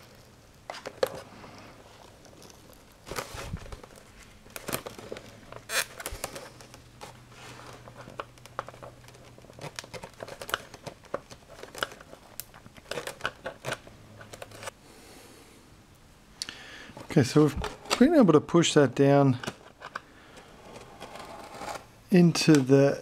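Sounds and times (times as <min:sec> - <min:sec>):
small clicks rubs and crinkles: 0:00.0 - 0:14.8.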